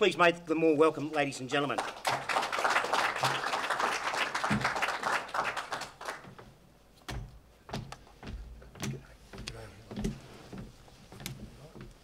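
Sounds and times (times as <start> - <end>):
audience applauding: 1.6 - 6.4.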